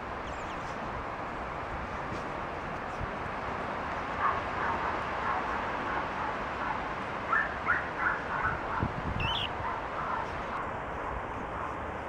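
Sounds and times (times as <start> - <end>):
outdoor background noise: 0.0 - 12.0
short high animal calls: 9.2 - 9.5.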